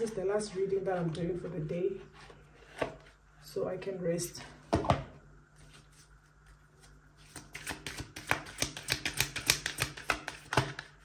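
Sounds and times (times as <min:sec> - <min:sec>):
cards being shuffled by hand: 0:05.6 - 0:11.0.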